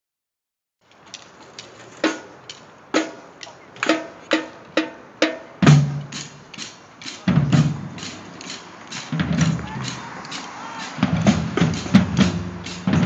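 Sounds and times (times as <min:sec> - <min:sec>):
marching drumline: 0:02.0 - 0:13.0.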